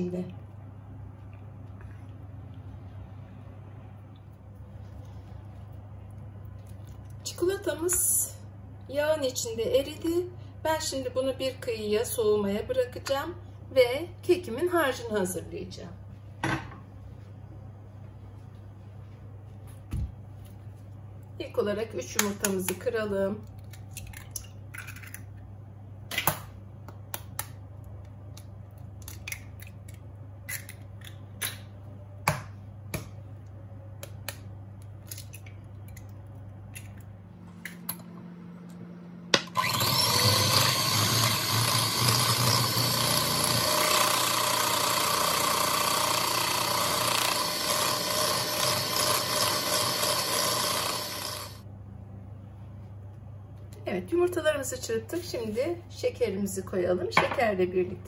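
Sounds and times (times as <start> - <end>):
electric hand mixer beating: 39.5 - 51.6.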